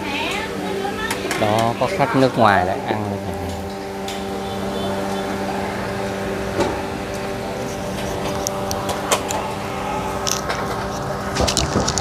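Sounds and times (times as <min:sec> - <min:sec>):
steady mechanical hum: 0:00.0 - 0:12.0.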